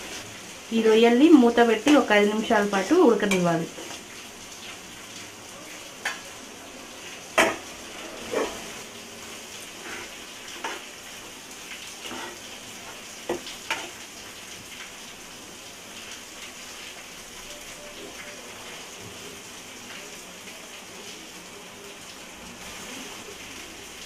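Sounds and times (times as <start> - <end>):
prawns sizzling in hot oil: 0.0 - 24.0
spatula scraping and knocking pan: 8.2 - 8.7, 9.8 - 10.9.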